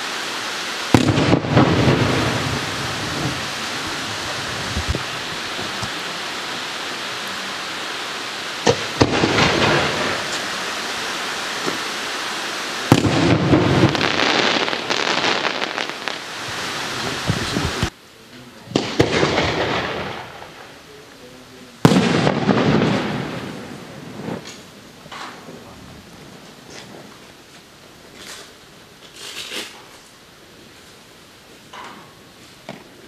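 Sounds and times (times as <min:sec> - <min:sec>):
firework shells bursting: 0:00.0 - 0:17.9, 0:18.7 - 0:20.9
firework crackling: 0:00.0 - 0:33.0
steady hiss: 0:00.0 - 0:33.0.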